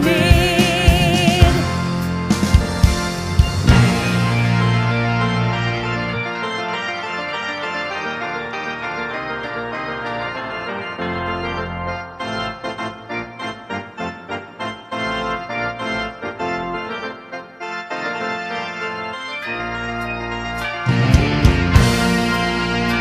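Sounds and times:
band playing: 0.0s - 23.0s
organ-like keyboard chords: 0.0s - 23.0s.

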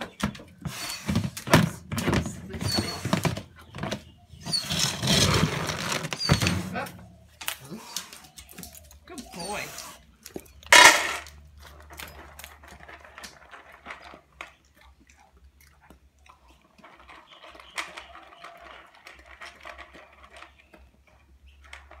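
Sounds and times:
dog crunching kibble: 7.4s - 22.0s.

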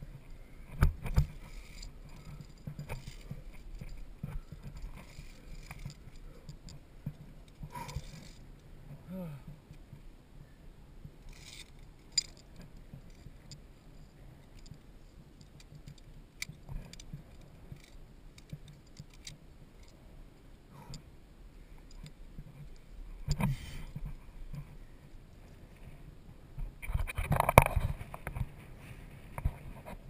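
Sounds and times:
carabiners clicking on steel cable: 0.7s - 8.7s, 11.2s - 20.0s.

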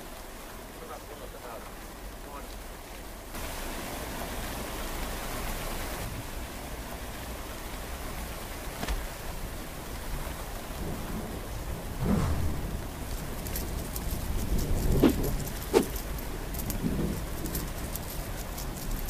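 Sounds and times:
steady rain falling: 0.0s - 19.0s
low rumble: 12.0s - 13.2s.

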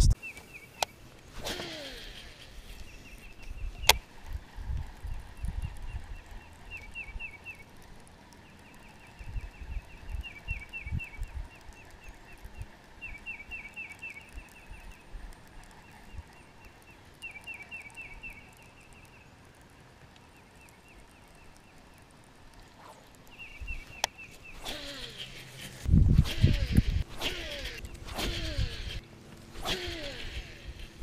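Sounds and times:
songbird trilling: 5.4s - 7.7s, 8.4s - 15.0s, 15.8s - 19.3s, 23.3s - 25.8s.

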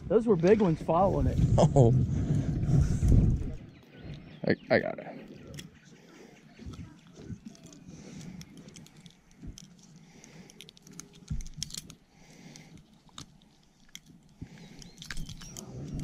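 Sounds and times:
soft handling noises: 5.2s - 16.0s
lure hooks clicking: 7.0s - 16.0s.

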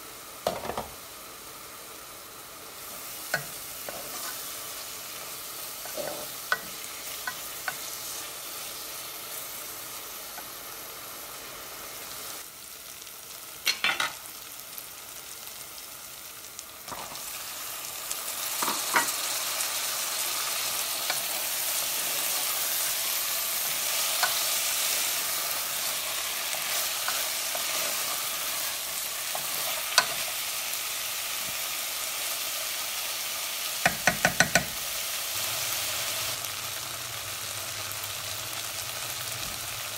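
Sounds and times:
food sizzling in oil: 0.0s - 39.9s
spatula knocking against pot: 33.8s - 34.8s.

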